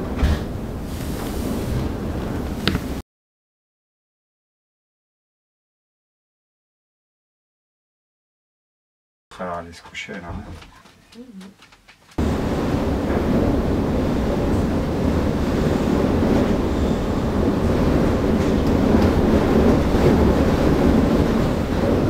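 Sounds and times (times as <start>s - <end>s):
storm wind roaring: 0.0s - 3.0s, 12.2s - 22.0s.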